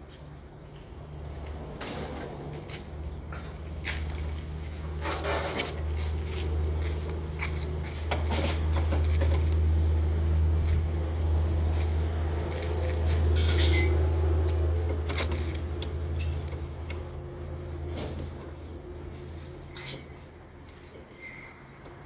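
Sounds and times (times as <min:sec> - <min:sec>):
metal clinks and knocks: 0:03.4 - 0:05.8, 0:13.4 - 0:14.0.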